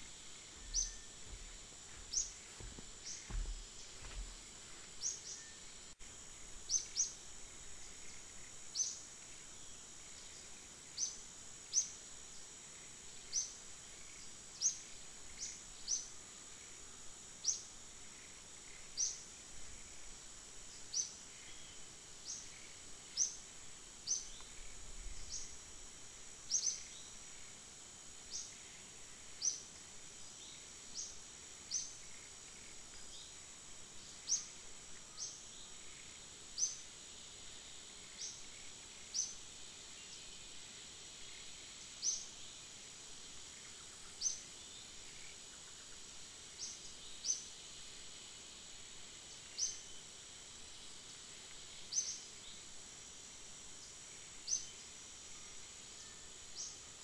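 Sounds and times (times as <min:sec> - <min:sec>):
high insect drone: 0:00.0 - 0:57.0.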